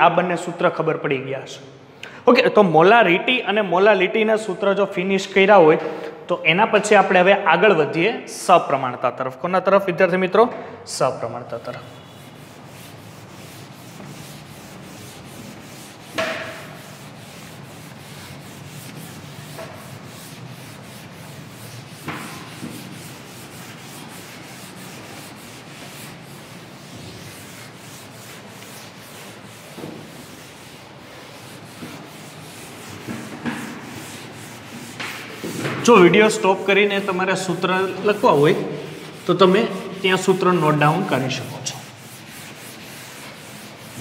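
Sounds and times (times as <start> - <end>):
duster rubbing a blackboard: 11.6 - 44.0
sharp knocks: 16.1 - 16.8.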